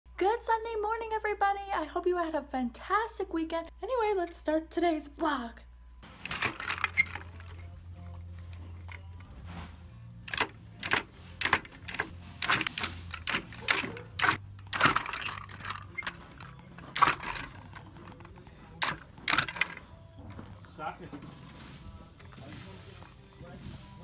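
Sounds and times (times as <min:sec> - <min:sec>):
plastic treat ball clattering: 0:06.1 - 0:09.2, 0:10.3 - 0:20.0.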